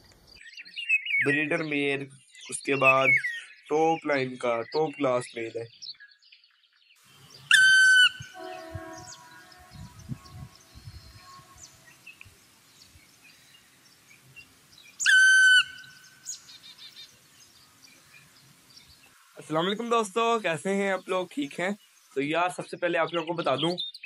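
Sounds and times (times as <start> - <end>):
faint steady tones: 7.2 - 15.0.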